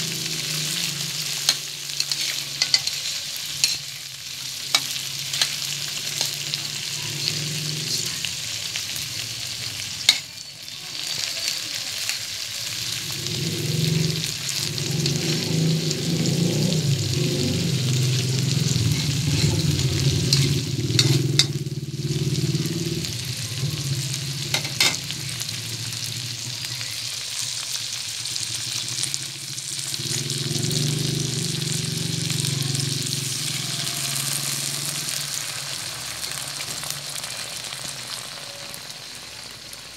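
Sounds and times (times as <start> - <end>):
shrimp sizzling in a wok: 0.0 - 39.9
low rumble: 13.1 - 26.6.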